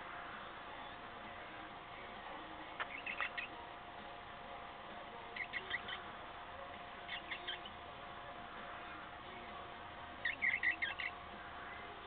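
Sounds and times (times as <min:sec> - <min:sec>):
cockatiel chirping: 0:02.8 - 0:03.6, 0:05.4 - 0:06.1, 0:07.1 - 0:07.8, 0:10.2 - 0:11.2.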